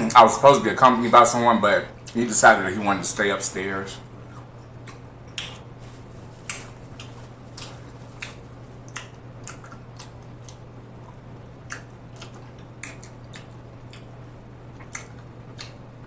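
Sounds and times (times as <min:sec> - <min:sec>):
steady low hum: 0:00.0 - 0:16.0
crunchy chewing: 0:04.2 - 0:16.0
wet mouth clicks: 0:06.4 - 0:14.2, 0:14.8 - 0:15.8.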